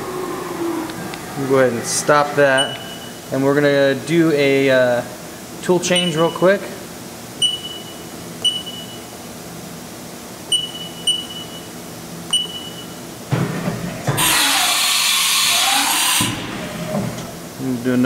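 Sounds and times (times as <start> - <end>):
short control beeps: 2.6 - 3.2, 6.0 - 6.5, 7.4 - 9.1, 10.5 - 11.7, 12.3 - 13.0.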